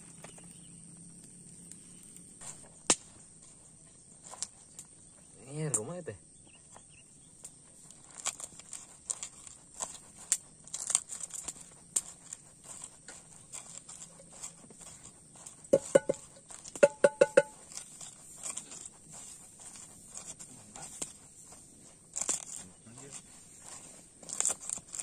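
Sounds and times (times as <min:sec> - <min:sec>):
pestle crushing in wooden mortar: 0:06.8 - 0:25.0
ringing wooden knocks: 0:15.7 - 0:17.6.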